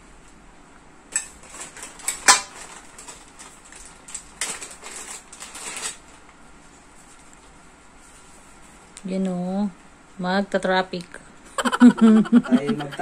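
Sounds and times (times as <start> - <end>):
plastic packaging clicks and knocks: 1.2 - 6.1
plastic bag crinkling: 1.4 - 6.4.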